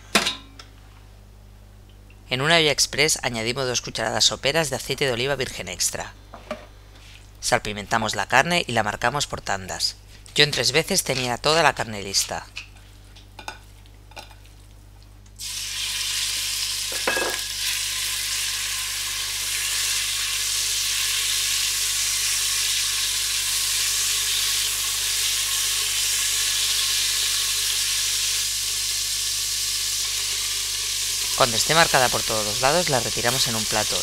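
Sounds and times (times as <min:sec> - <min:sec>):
beef sizzling in hot oil: 0:15.4 - 0:34.0.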